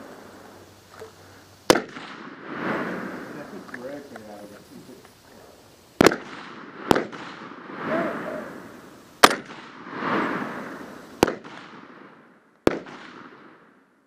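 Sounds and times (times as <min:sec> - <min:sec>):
rifle shots: 0:01.6 - 0:04.0, 0:06.0 - 0:13.8.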